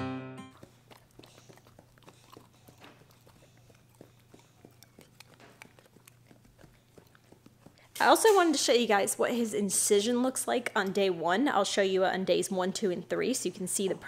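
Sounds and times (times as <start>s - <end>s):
puppy chewing crunchy cracker: 0.5s - 8.4s.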